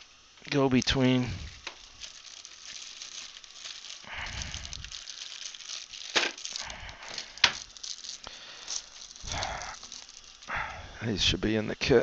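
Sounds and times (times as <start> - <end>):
small metal instruments rattling: 1.9 - 10.6.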